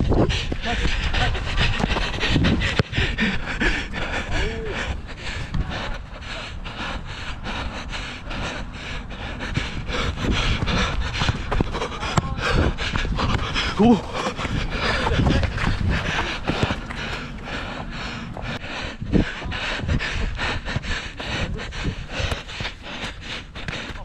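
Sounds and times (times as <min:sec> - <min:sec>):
heavy breathing: 0:00.0 - 0:24.0
running footsteps on turf: 0:09.2 - 0:24.0.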